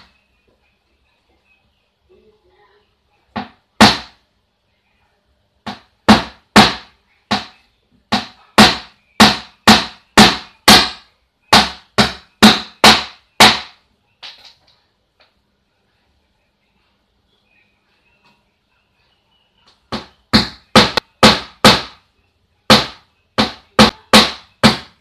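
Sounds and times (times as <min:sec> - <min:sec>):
hammer striking nail into wood: 0:03.4 - 0:04.2, 0:05.6 - 0:13.8, 0:19.9 - 0:22.0, 0:22.7 - 0:25.0.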